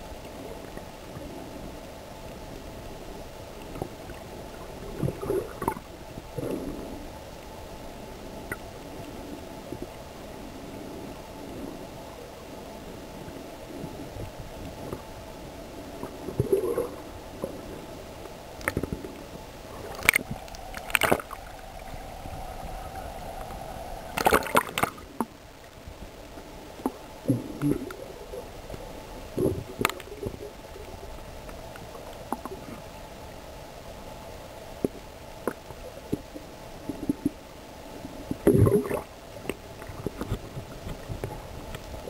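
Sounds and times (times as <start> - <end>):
underwater sloshing and gurgling: 0.0 - 42.0
water splashes: 3.6 - 7.0, 18.4 - 32.8.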